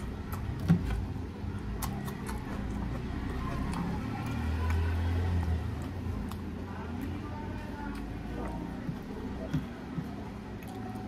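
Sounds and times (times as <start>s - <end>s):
mouth clicks and smacks: 0.0s - 7.1s
person chewing food: 0.0s - 11.0s.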